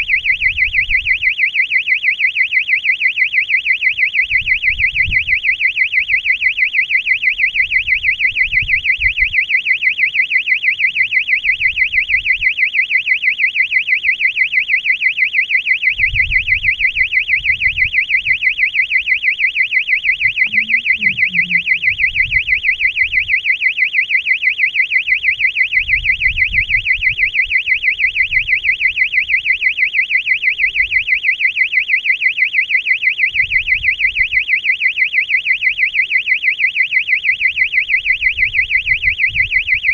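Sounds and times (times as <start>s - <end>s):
electronic alarm buzzer warbling: 16.4s - 23.4s.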